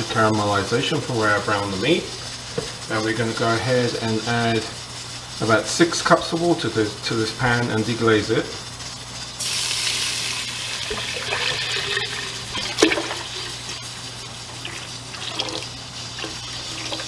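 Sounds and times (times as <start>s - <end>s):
water sizzling in a pan: 0.0s - 17.0s
water pouring into a hot pot: 9.4s - 17.0s.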